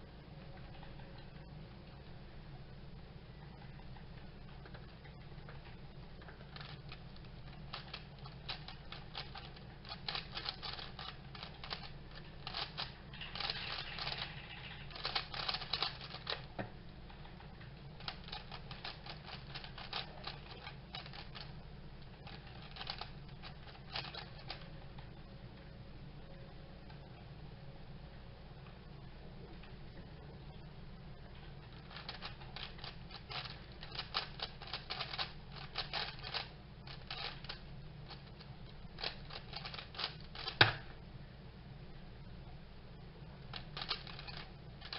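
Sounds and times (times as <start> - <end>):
steady low hum: 0.0 - 44.9
speedcube clicking clatter: 6.2 - 16.6, 17.9 - 24.8, 31.7 - 40.8, 43.5 - 44.9.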